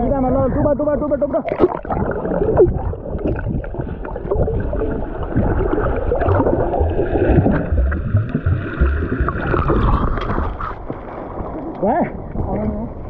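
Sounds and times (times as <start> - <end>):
water sloshing and splashing: 1.4 - 13.0
muffled low rumbles: 1.6 - 11.1.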